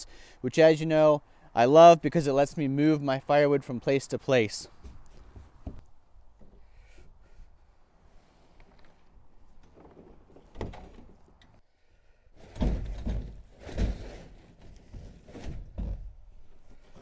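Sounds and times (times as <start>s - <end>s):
dull knocks and thumps: 4.8s - 5.8s, 12.5s - 14.1s, 15.4s - 16.2s.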